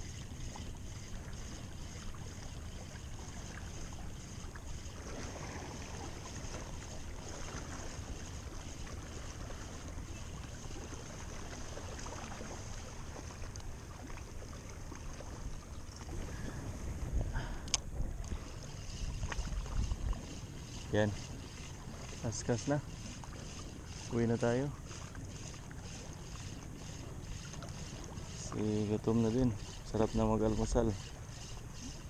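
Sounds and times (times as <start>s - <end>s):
water lapping at shore: 0.0s - 32.0s
wind on microphone: 16.0s - 22.2s.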